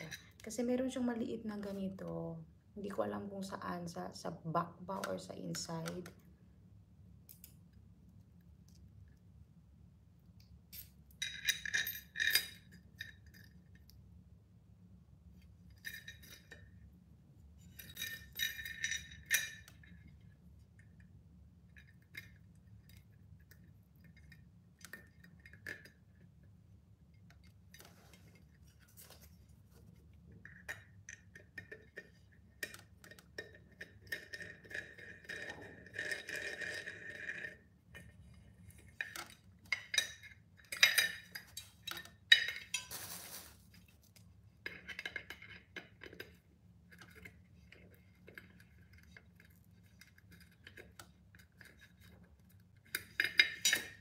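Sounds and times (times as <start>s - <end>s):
metal parts clinking on glass lid: 10.7s - 13.4s, 17.7s - 20.0s, 39.0s - 43.2s, 53.2s - 54.0s.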